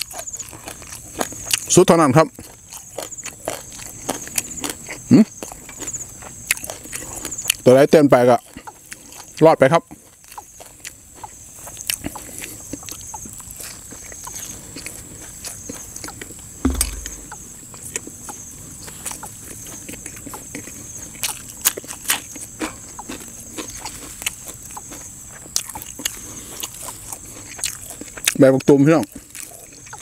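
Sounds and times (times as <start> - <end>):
wet chewing: 0.0 - 30.0
dull thump: 16.6 - 17.4.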